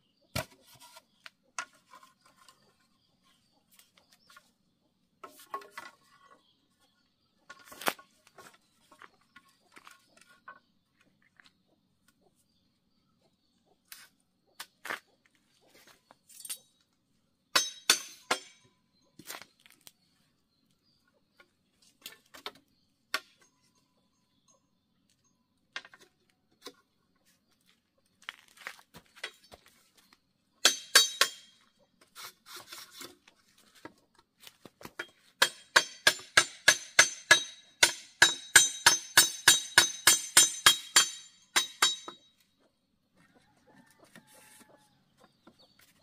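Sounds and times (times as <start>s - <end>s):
hammer striking nail: 35.4s - 42.2s.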